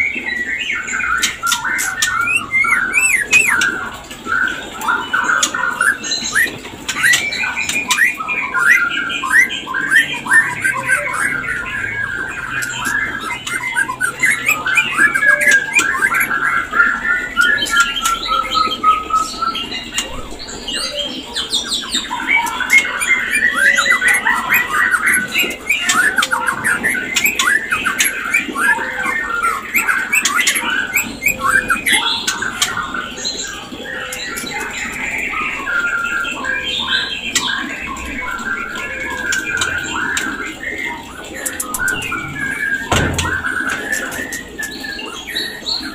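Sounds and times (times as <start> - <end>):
songbird chattering and whistling: 0.0 - 45.9.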